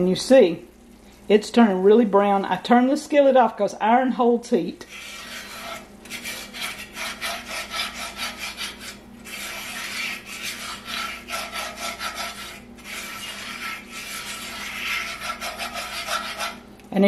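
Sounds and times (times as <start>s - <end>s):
whisk scraping skillet: 4.8s - 16.7s.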